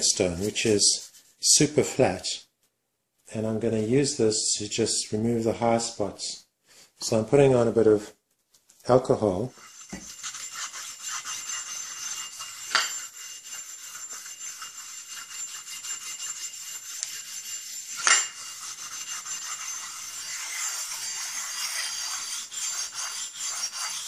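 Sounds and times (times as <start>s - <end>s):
metal scraping on whetstone: 9.3s - 24.0s.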